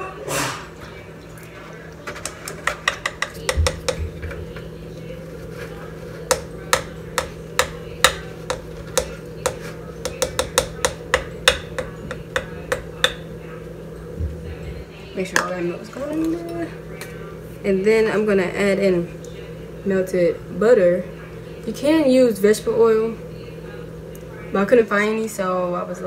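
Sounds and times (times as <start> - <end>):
plastic cup tapping on steel bowl: 2.5 - 4.0, 6.3 - 13.3.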